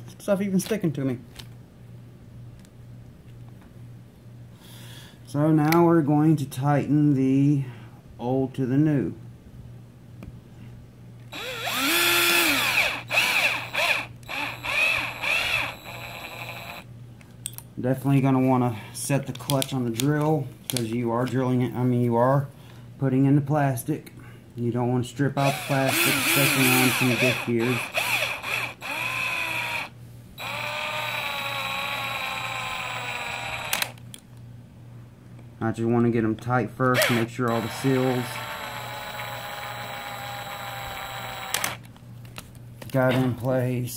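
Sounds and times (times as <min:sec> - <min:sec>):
power drill motor whine: 0:11.3 - 0:16.9, 0:25.4 - 0:34.0, 0:37.0 - 0:41.8.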